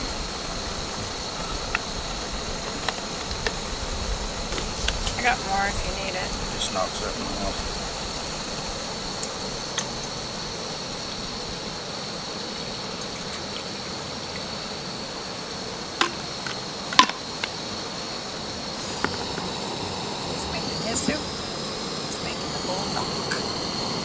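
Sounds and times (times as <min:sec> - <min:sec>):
water pouring into metal pot: 0:12.5 - 0:14.6.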